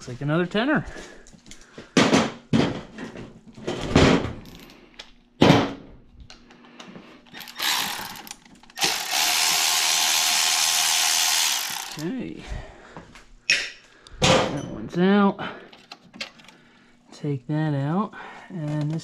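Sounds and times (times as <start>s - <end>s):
cordless power tool running: 7.4s - 12.2s.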